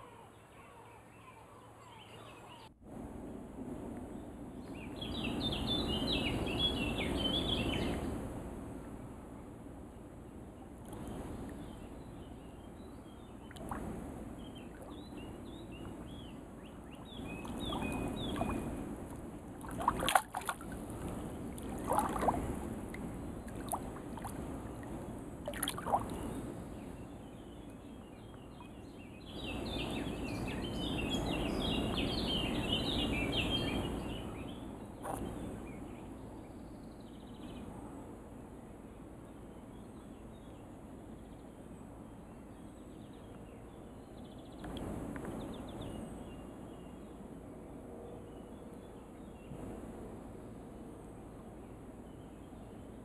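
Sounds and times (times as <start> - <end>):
small birds chirping: 14.4 - 18.9, 25.6 - 37.7
fish splashing in water: 19.6 - 22.6, 25.4 - 26.2.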